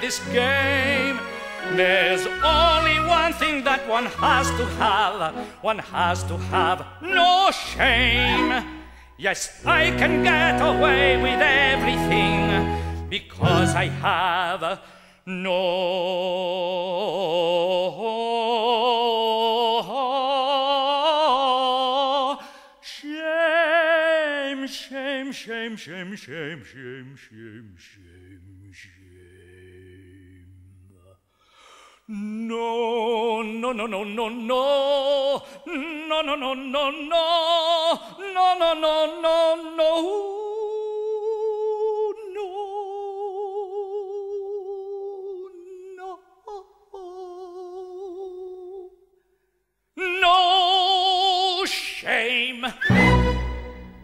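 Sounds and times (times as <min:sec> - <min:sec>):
man singing high note: 0:00.0 - 0:22.2
man singing operatic notes: 0:00.0 - 0:31.2, 0:32.1 - 0:49.1, 0:50.0 - 0:54.0.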